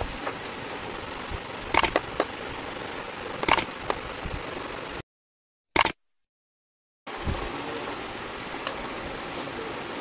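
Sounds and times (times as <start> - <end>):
loud sharp clicks: 1.8 - 2.1, 3.4 - 3.7, 5.8 - 6.0.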